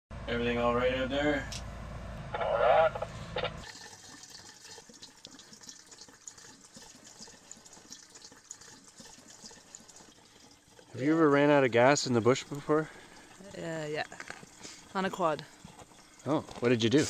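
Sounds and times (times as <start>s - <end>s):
gasoline pouring into fuel tank: 3.6s - 17.0s.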